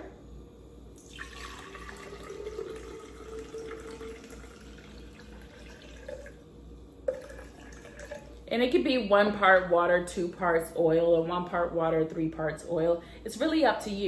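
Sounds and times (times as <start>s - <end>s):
water pouring into glass vase: 1.0s - 6.5s, 7.1s - 8.5s.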